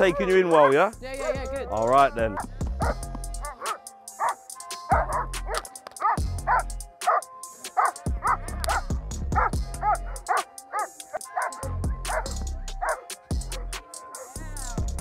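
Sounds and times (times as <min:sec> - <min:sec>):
dog barking aggressively: 0:02.3 - 0:14.3.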